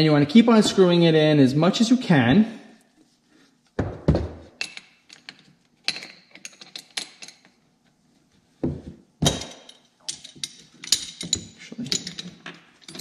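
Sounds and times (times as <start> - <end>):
metal parts clicking and rattling: 4.6 - 7.5, 9.2 - 13.0.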